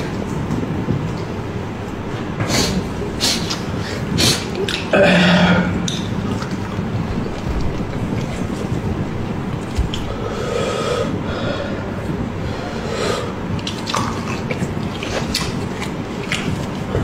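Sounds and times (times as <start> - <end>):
noisy background: 0.0 - 17.0
loud deep burp: 4.9 - 5.9.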